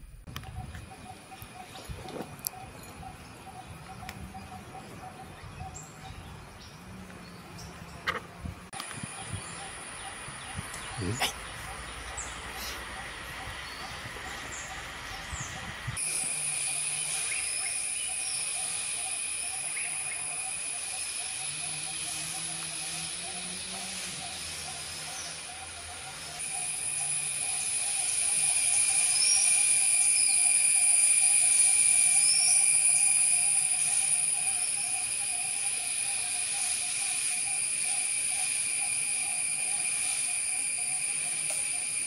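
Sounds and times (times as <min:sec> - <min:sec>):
bird chirps: 0:00.3 - 0:42.0
rapidly pulsing buzz: 0:08.3 - 0:42.0
high-pitched insect drone: 0:08.7 - 0:42.0.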